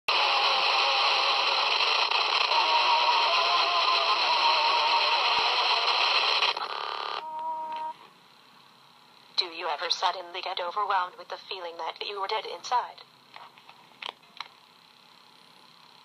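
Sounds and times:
speaker hiss and static: 0:00.1 - 0:16.0
rough buzz: 0:00.2 - 0:07.2.

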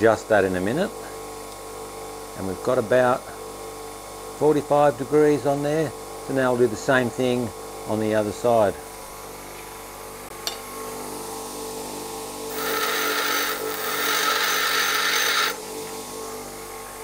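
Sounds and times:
tool bit grinding on wheel: 0:12.5 - 0:15.6
bench grinder motor hum: 0:12.5 - 0:17.0.

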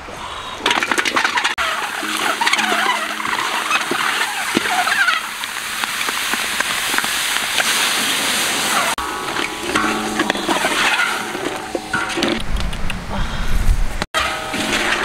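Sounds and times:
eggs knocking: 0:00.6 - 0:07.7, 0:09.0 - 0:12.7
eggs sizzling in a wok: 0:01.4 - 0:10.5
wooden spatula scraping pan: 0:01.7 - 0:05.5.

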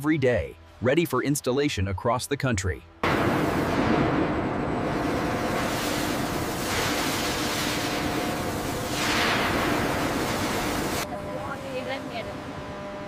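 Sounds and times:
industrial machinery rushing: 0:03.0 - 0:11.0.

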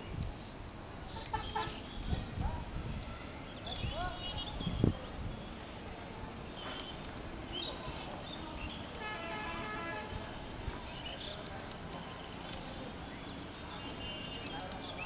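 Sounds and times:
street noise: 0:00.0 - 0:15.0
vehicle horn: 0:01.3 - 0:01.9, 0:09.0 - 0:10.2.

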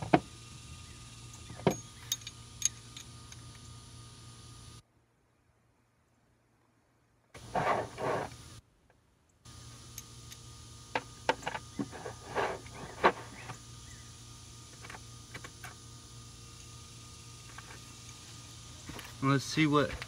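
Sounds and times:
steady low hum: 0:00.0 - 0:05.0, 0:07.4 - 0:20.0
metal tools clicking and clinking: 0:01.2 - 0:03.8.

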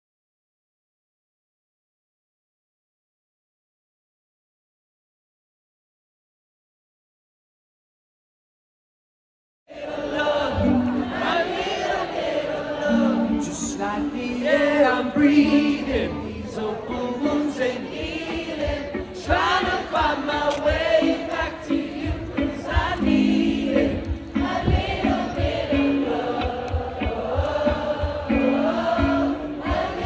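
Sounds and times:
crowd singing along: 0:09.7 - 0:30.0
live band playing: 0:10.5 - 0:11.6, 0:12.7 - 0:30.0.

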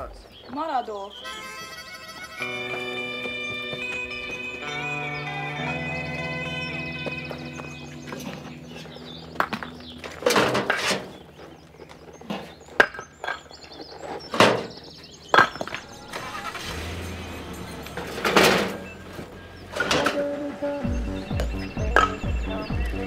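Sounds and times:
background music: 0:00.8 - 0:12.6, 0:15.7 - 0:23.0
debris crashing and clattering: 0:15.3 - 0:20.2.

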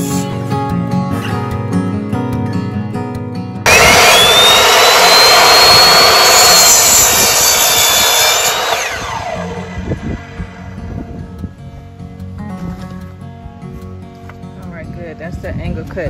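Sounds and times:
acoustic guitar music: 0:00.0 - 0:03.7, 0:10.4 - 0:15.7
electric saw cutting wood: 0:03.7 - 0:11.4.

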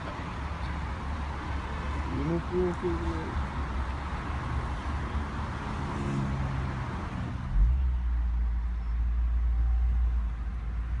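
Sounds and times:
road traffic hiss: 0:00.0 - 0:11.0.

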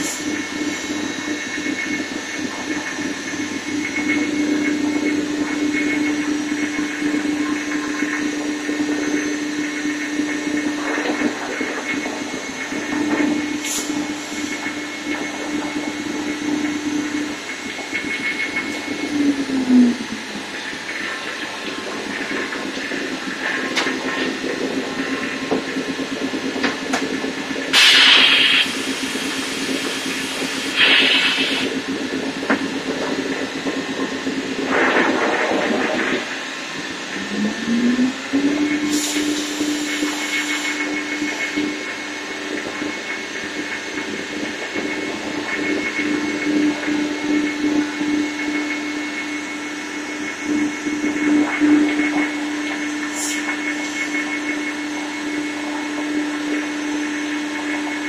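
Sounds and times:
machine hum: 0:00.0 - 0:58.0
bursts of hissing air: 0:27.8 - 0:31.7.

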